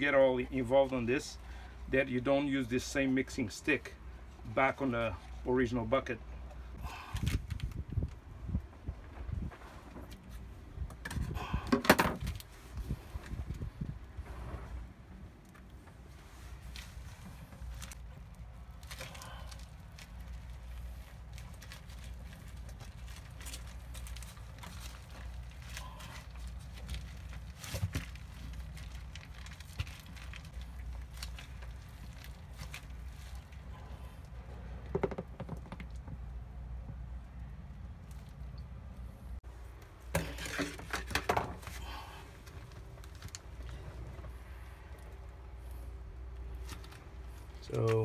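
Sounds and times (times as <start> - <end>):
plastic bag crinkling: 16.6 - 33.7.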